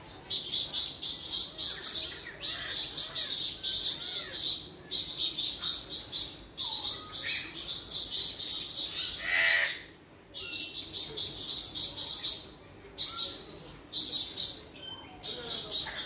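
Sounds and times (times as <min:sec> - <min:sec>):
parrots calling: 0:08.9 - 0:10.7
parrot squawk: 0:09.2 - 0:09.8.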